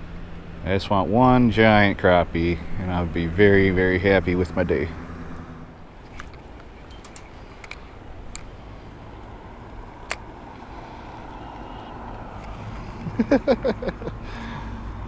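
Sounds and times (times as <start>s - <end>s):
man speaking: 0.6s - 5.0s.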